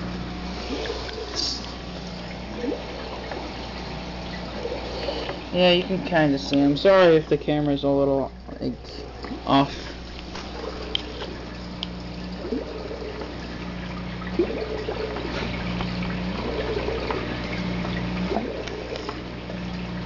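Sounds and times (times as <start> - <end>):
aquarium filter water trickling: 0.0 - 20.0
steady low hum: 0.0 - 20.0.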